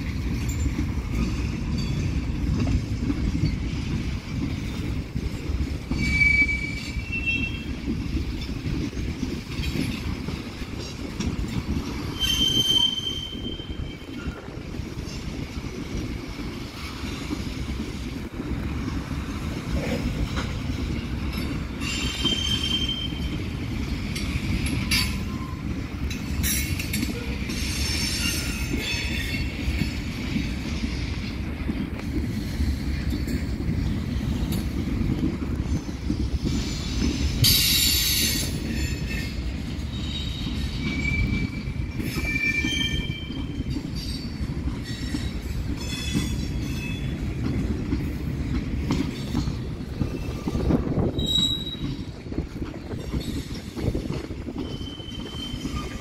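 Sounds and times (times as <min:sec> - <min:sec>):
freight train cars rumbling: 0:00.0 - 0:56.0
wheel flanges squealing: 0:05.9 - 0:07.9, 0:12.0 - 0:14.5, 0:37.4 - 0:47.2, 0:50.0 - 0:52.2, 0:52.9 - 0:56.0.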